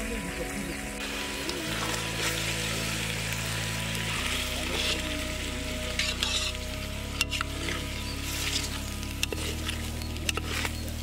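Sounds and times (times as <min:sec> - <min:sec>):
background music chords: 0:00.0 - 0:11.0.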